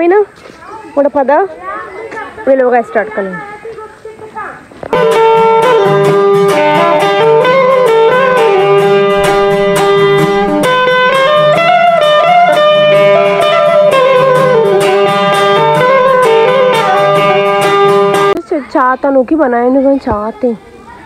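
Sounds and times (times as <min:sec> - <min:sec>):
plucked string instrument: 0:04.8 - 0:18.4
sliding melody line: 0:05.0 - 0:18.4.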